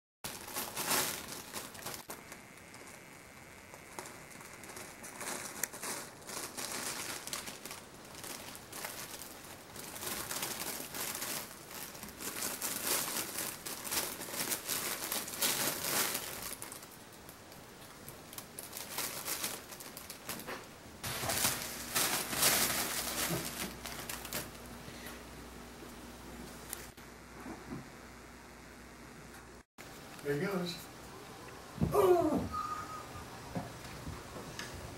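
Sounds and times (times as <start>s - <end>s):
fabric tunnel rustling and crinkling: 0.3s - 3.0s, 3.7s - 17.0s, 18.3s - 24.6s.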